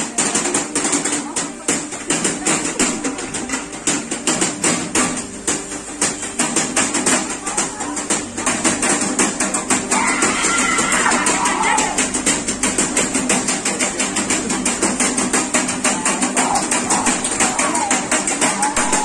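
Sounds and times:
quick sharp clacks: 8.1 - 19.0
voices chanting: 9.9 - 12.2, 15.8 - 19.0.

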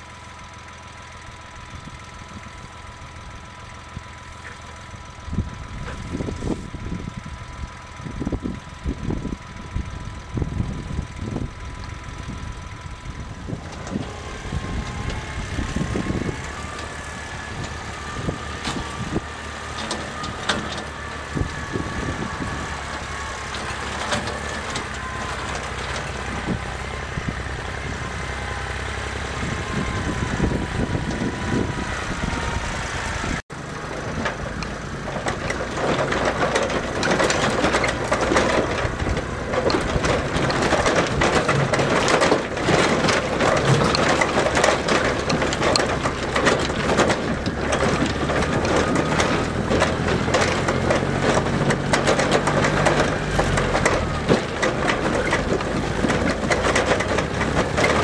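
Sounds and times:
diesel tractor engine running: 0.0 - 58.0
faint engine whine: 0.0 - 58.0
rattling clatter of trailer: 0.0 - 58.0.

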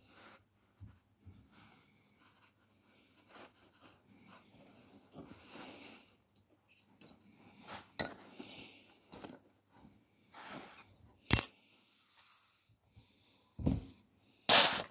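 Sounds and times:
soft rustling: 0.0 - 7.0.

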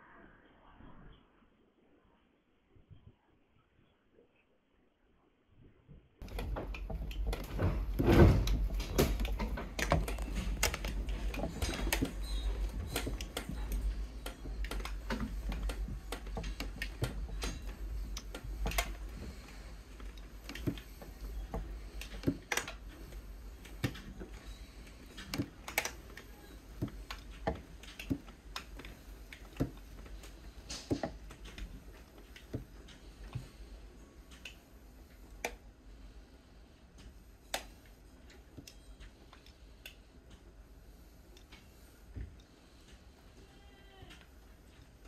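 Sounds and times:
window frames creaking and ticking: 6.2 - 35.7.

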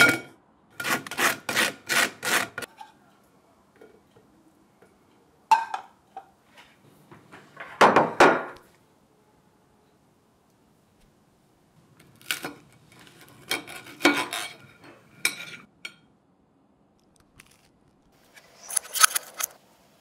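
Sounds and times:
metal spatula scraping frying pan: 13.3 - 15.7.

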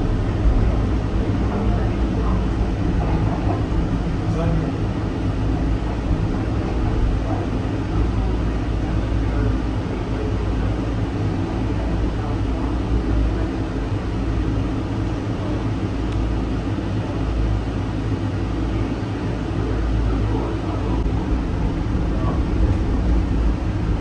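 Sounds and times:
people-mover train rumbling: 0.0 - 24.0.

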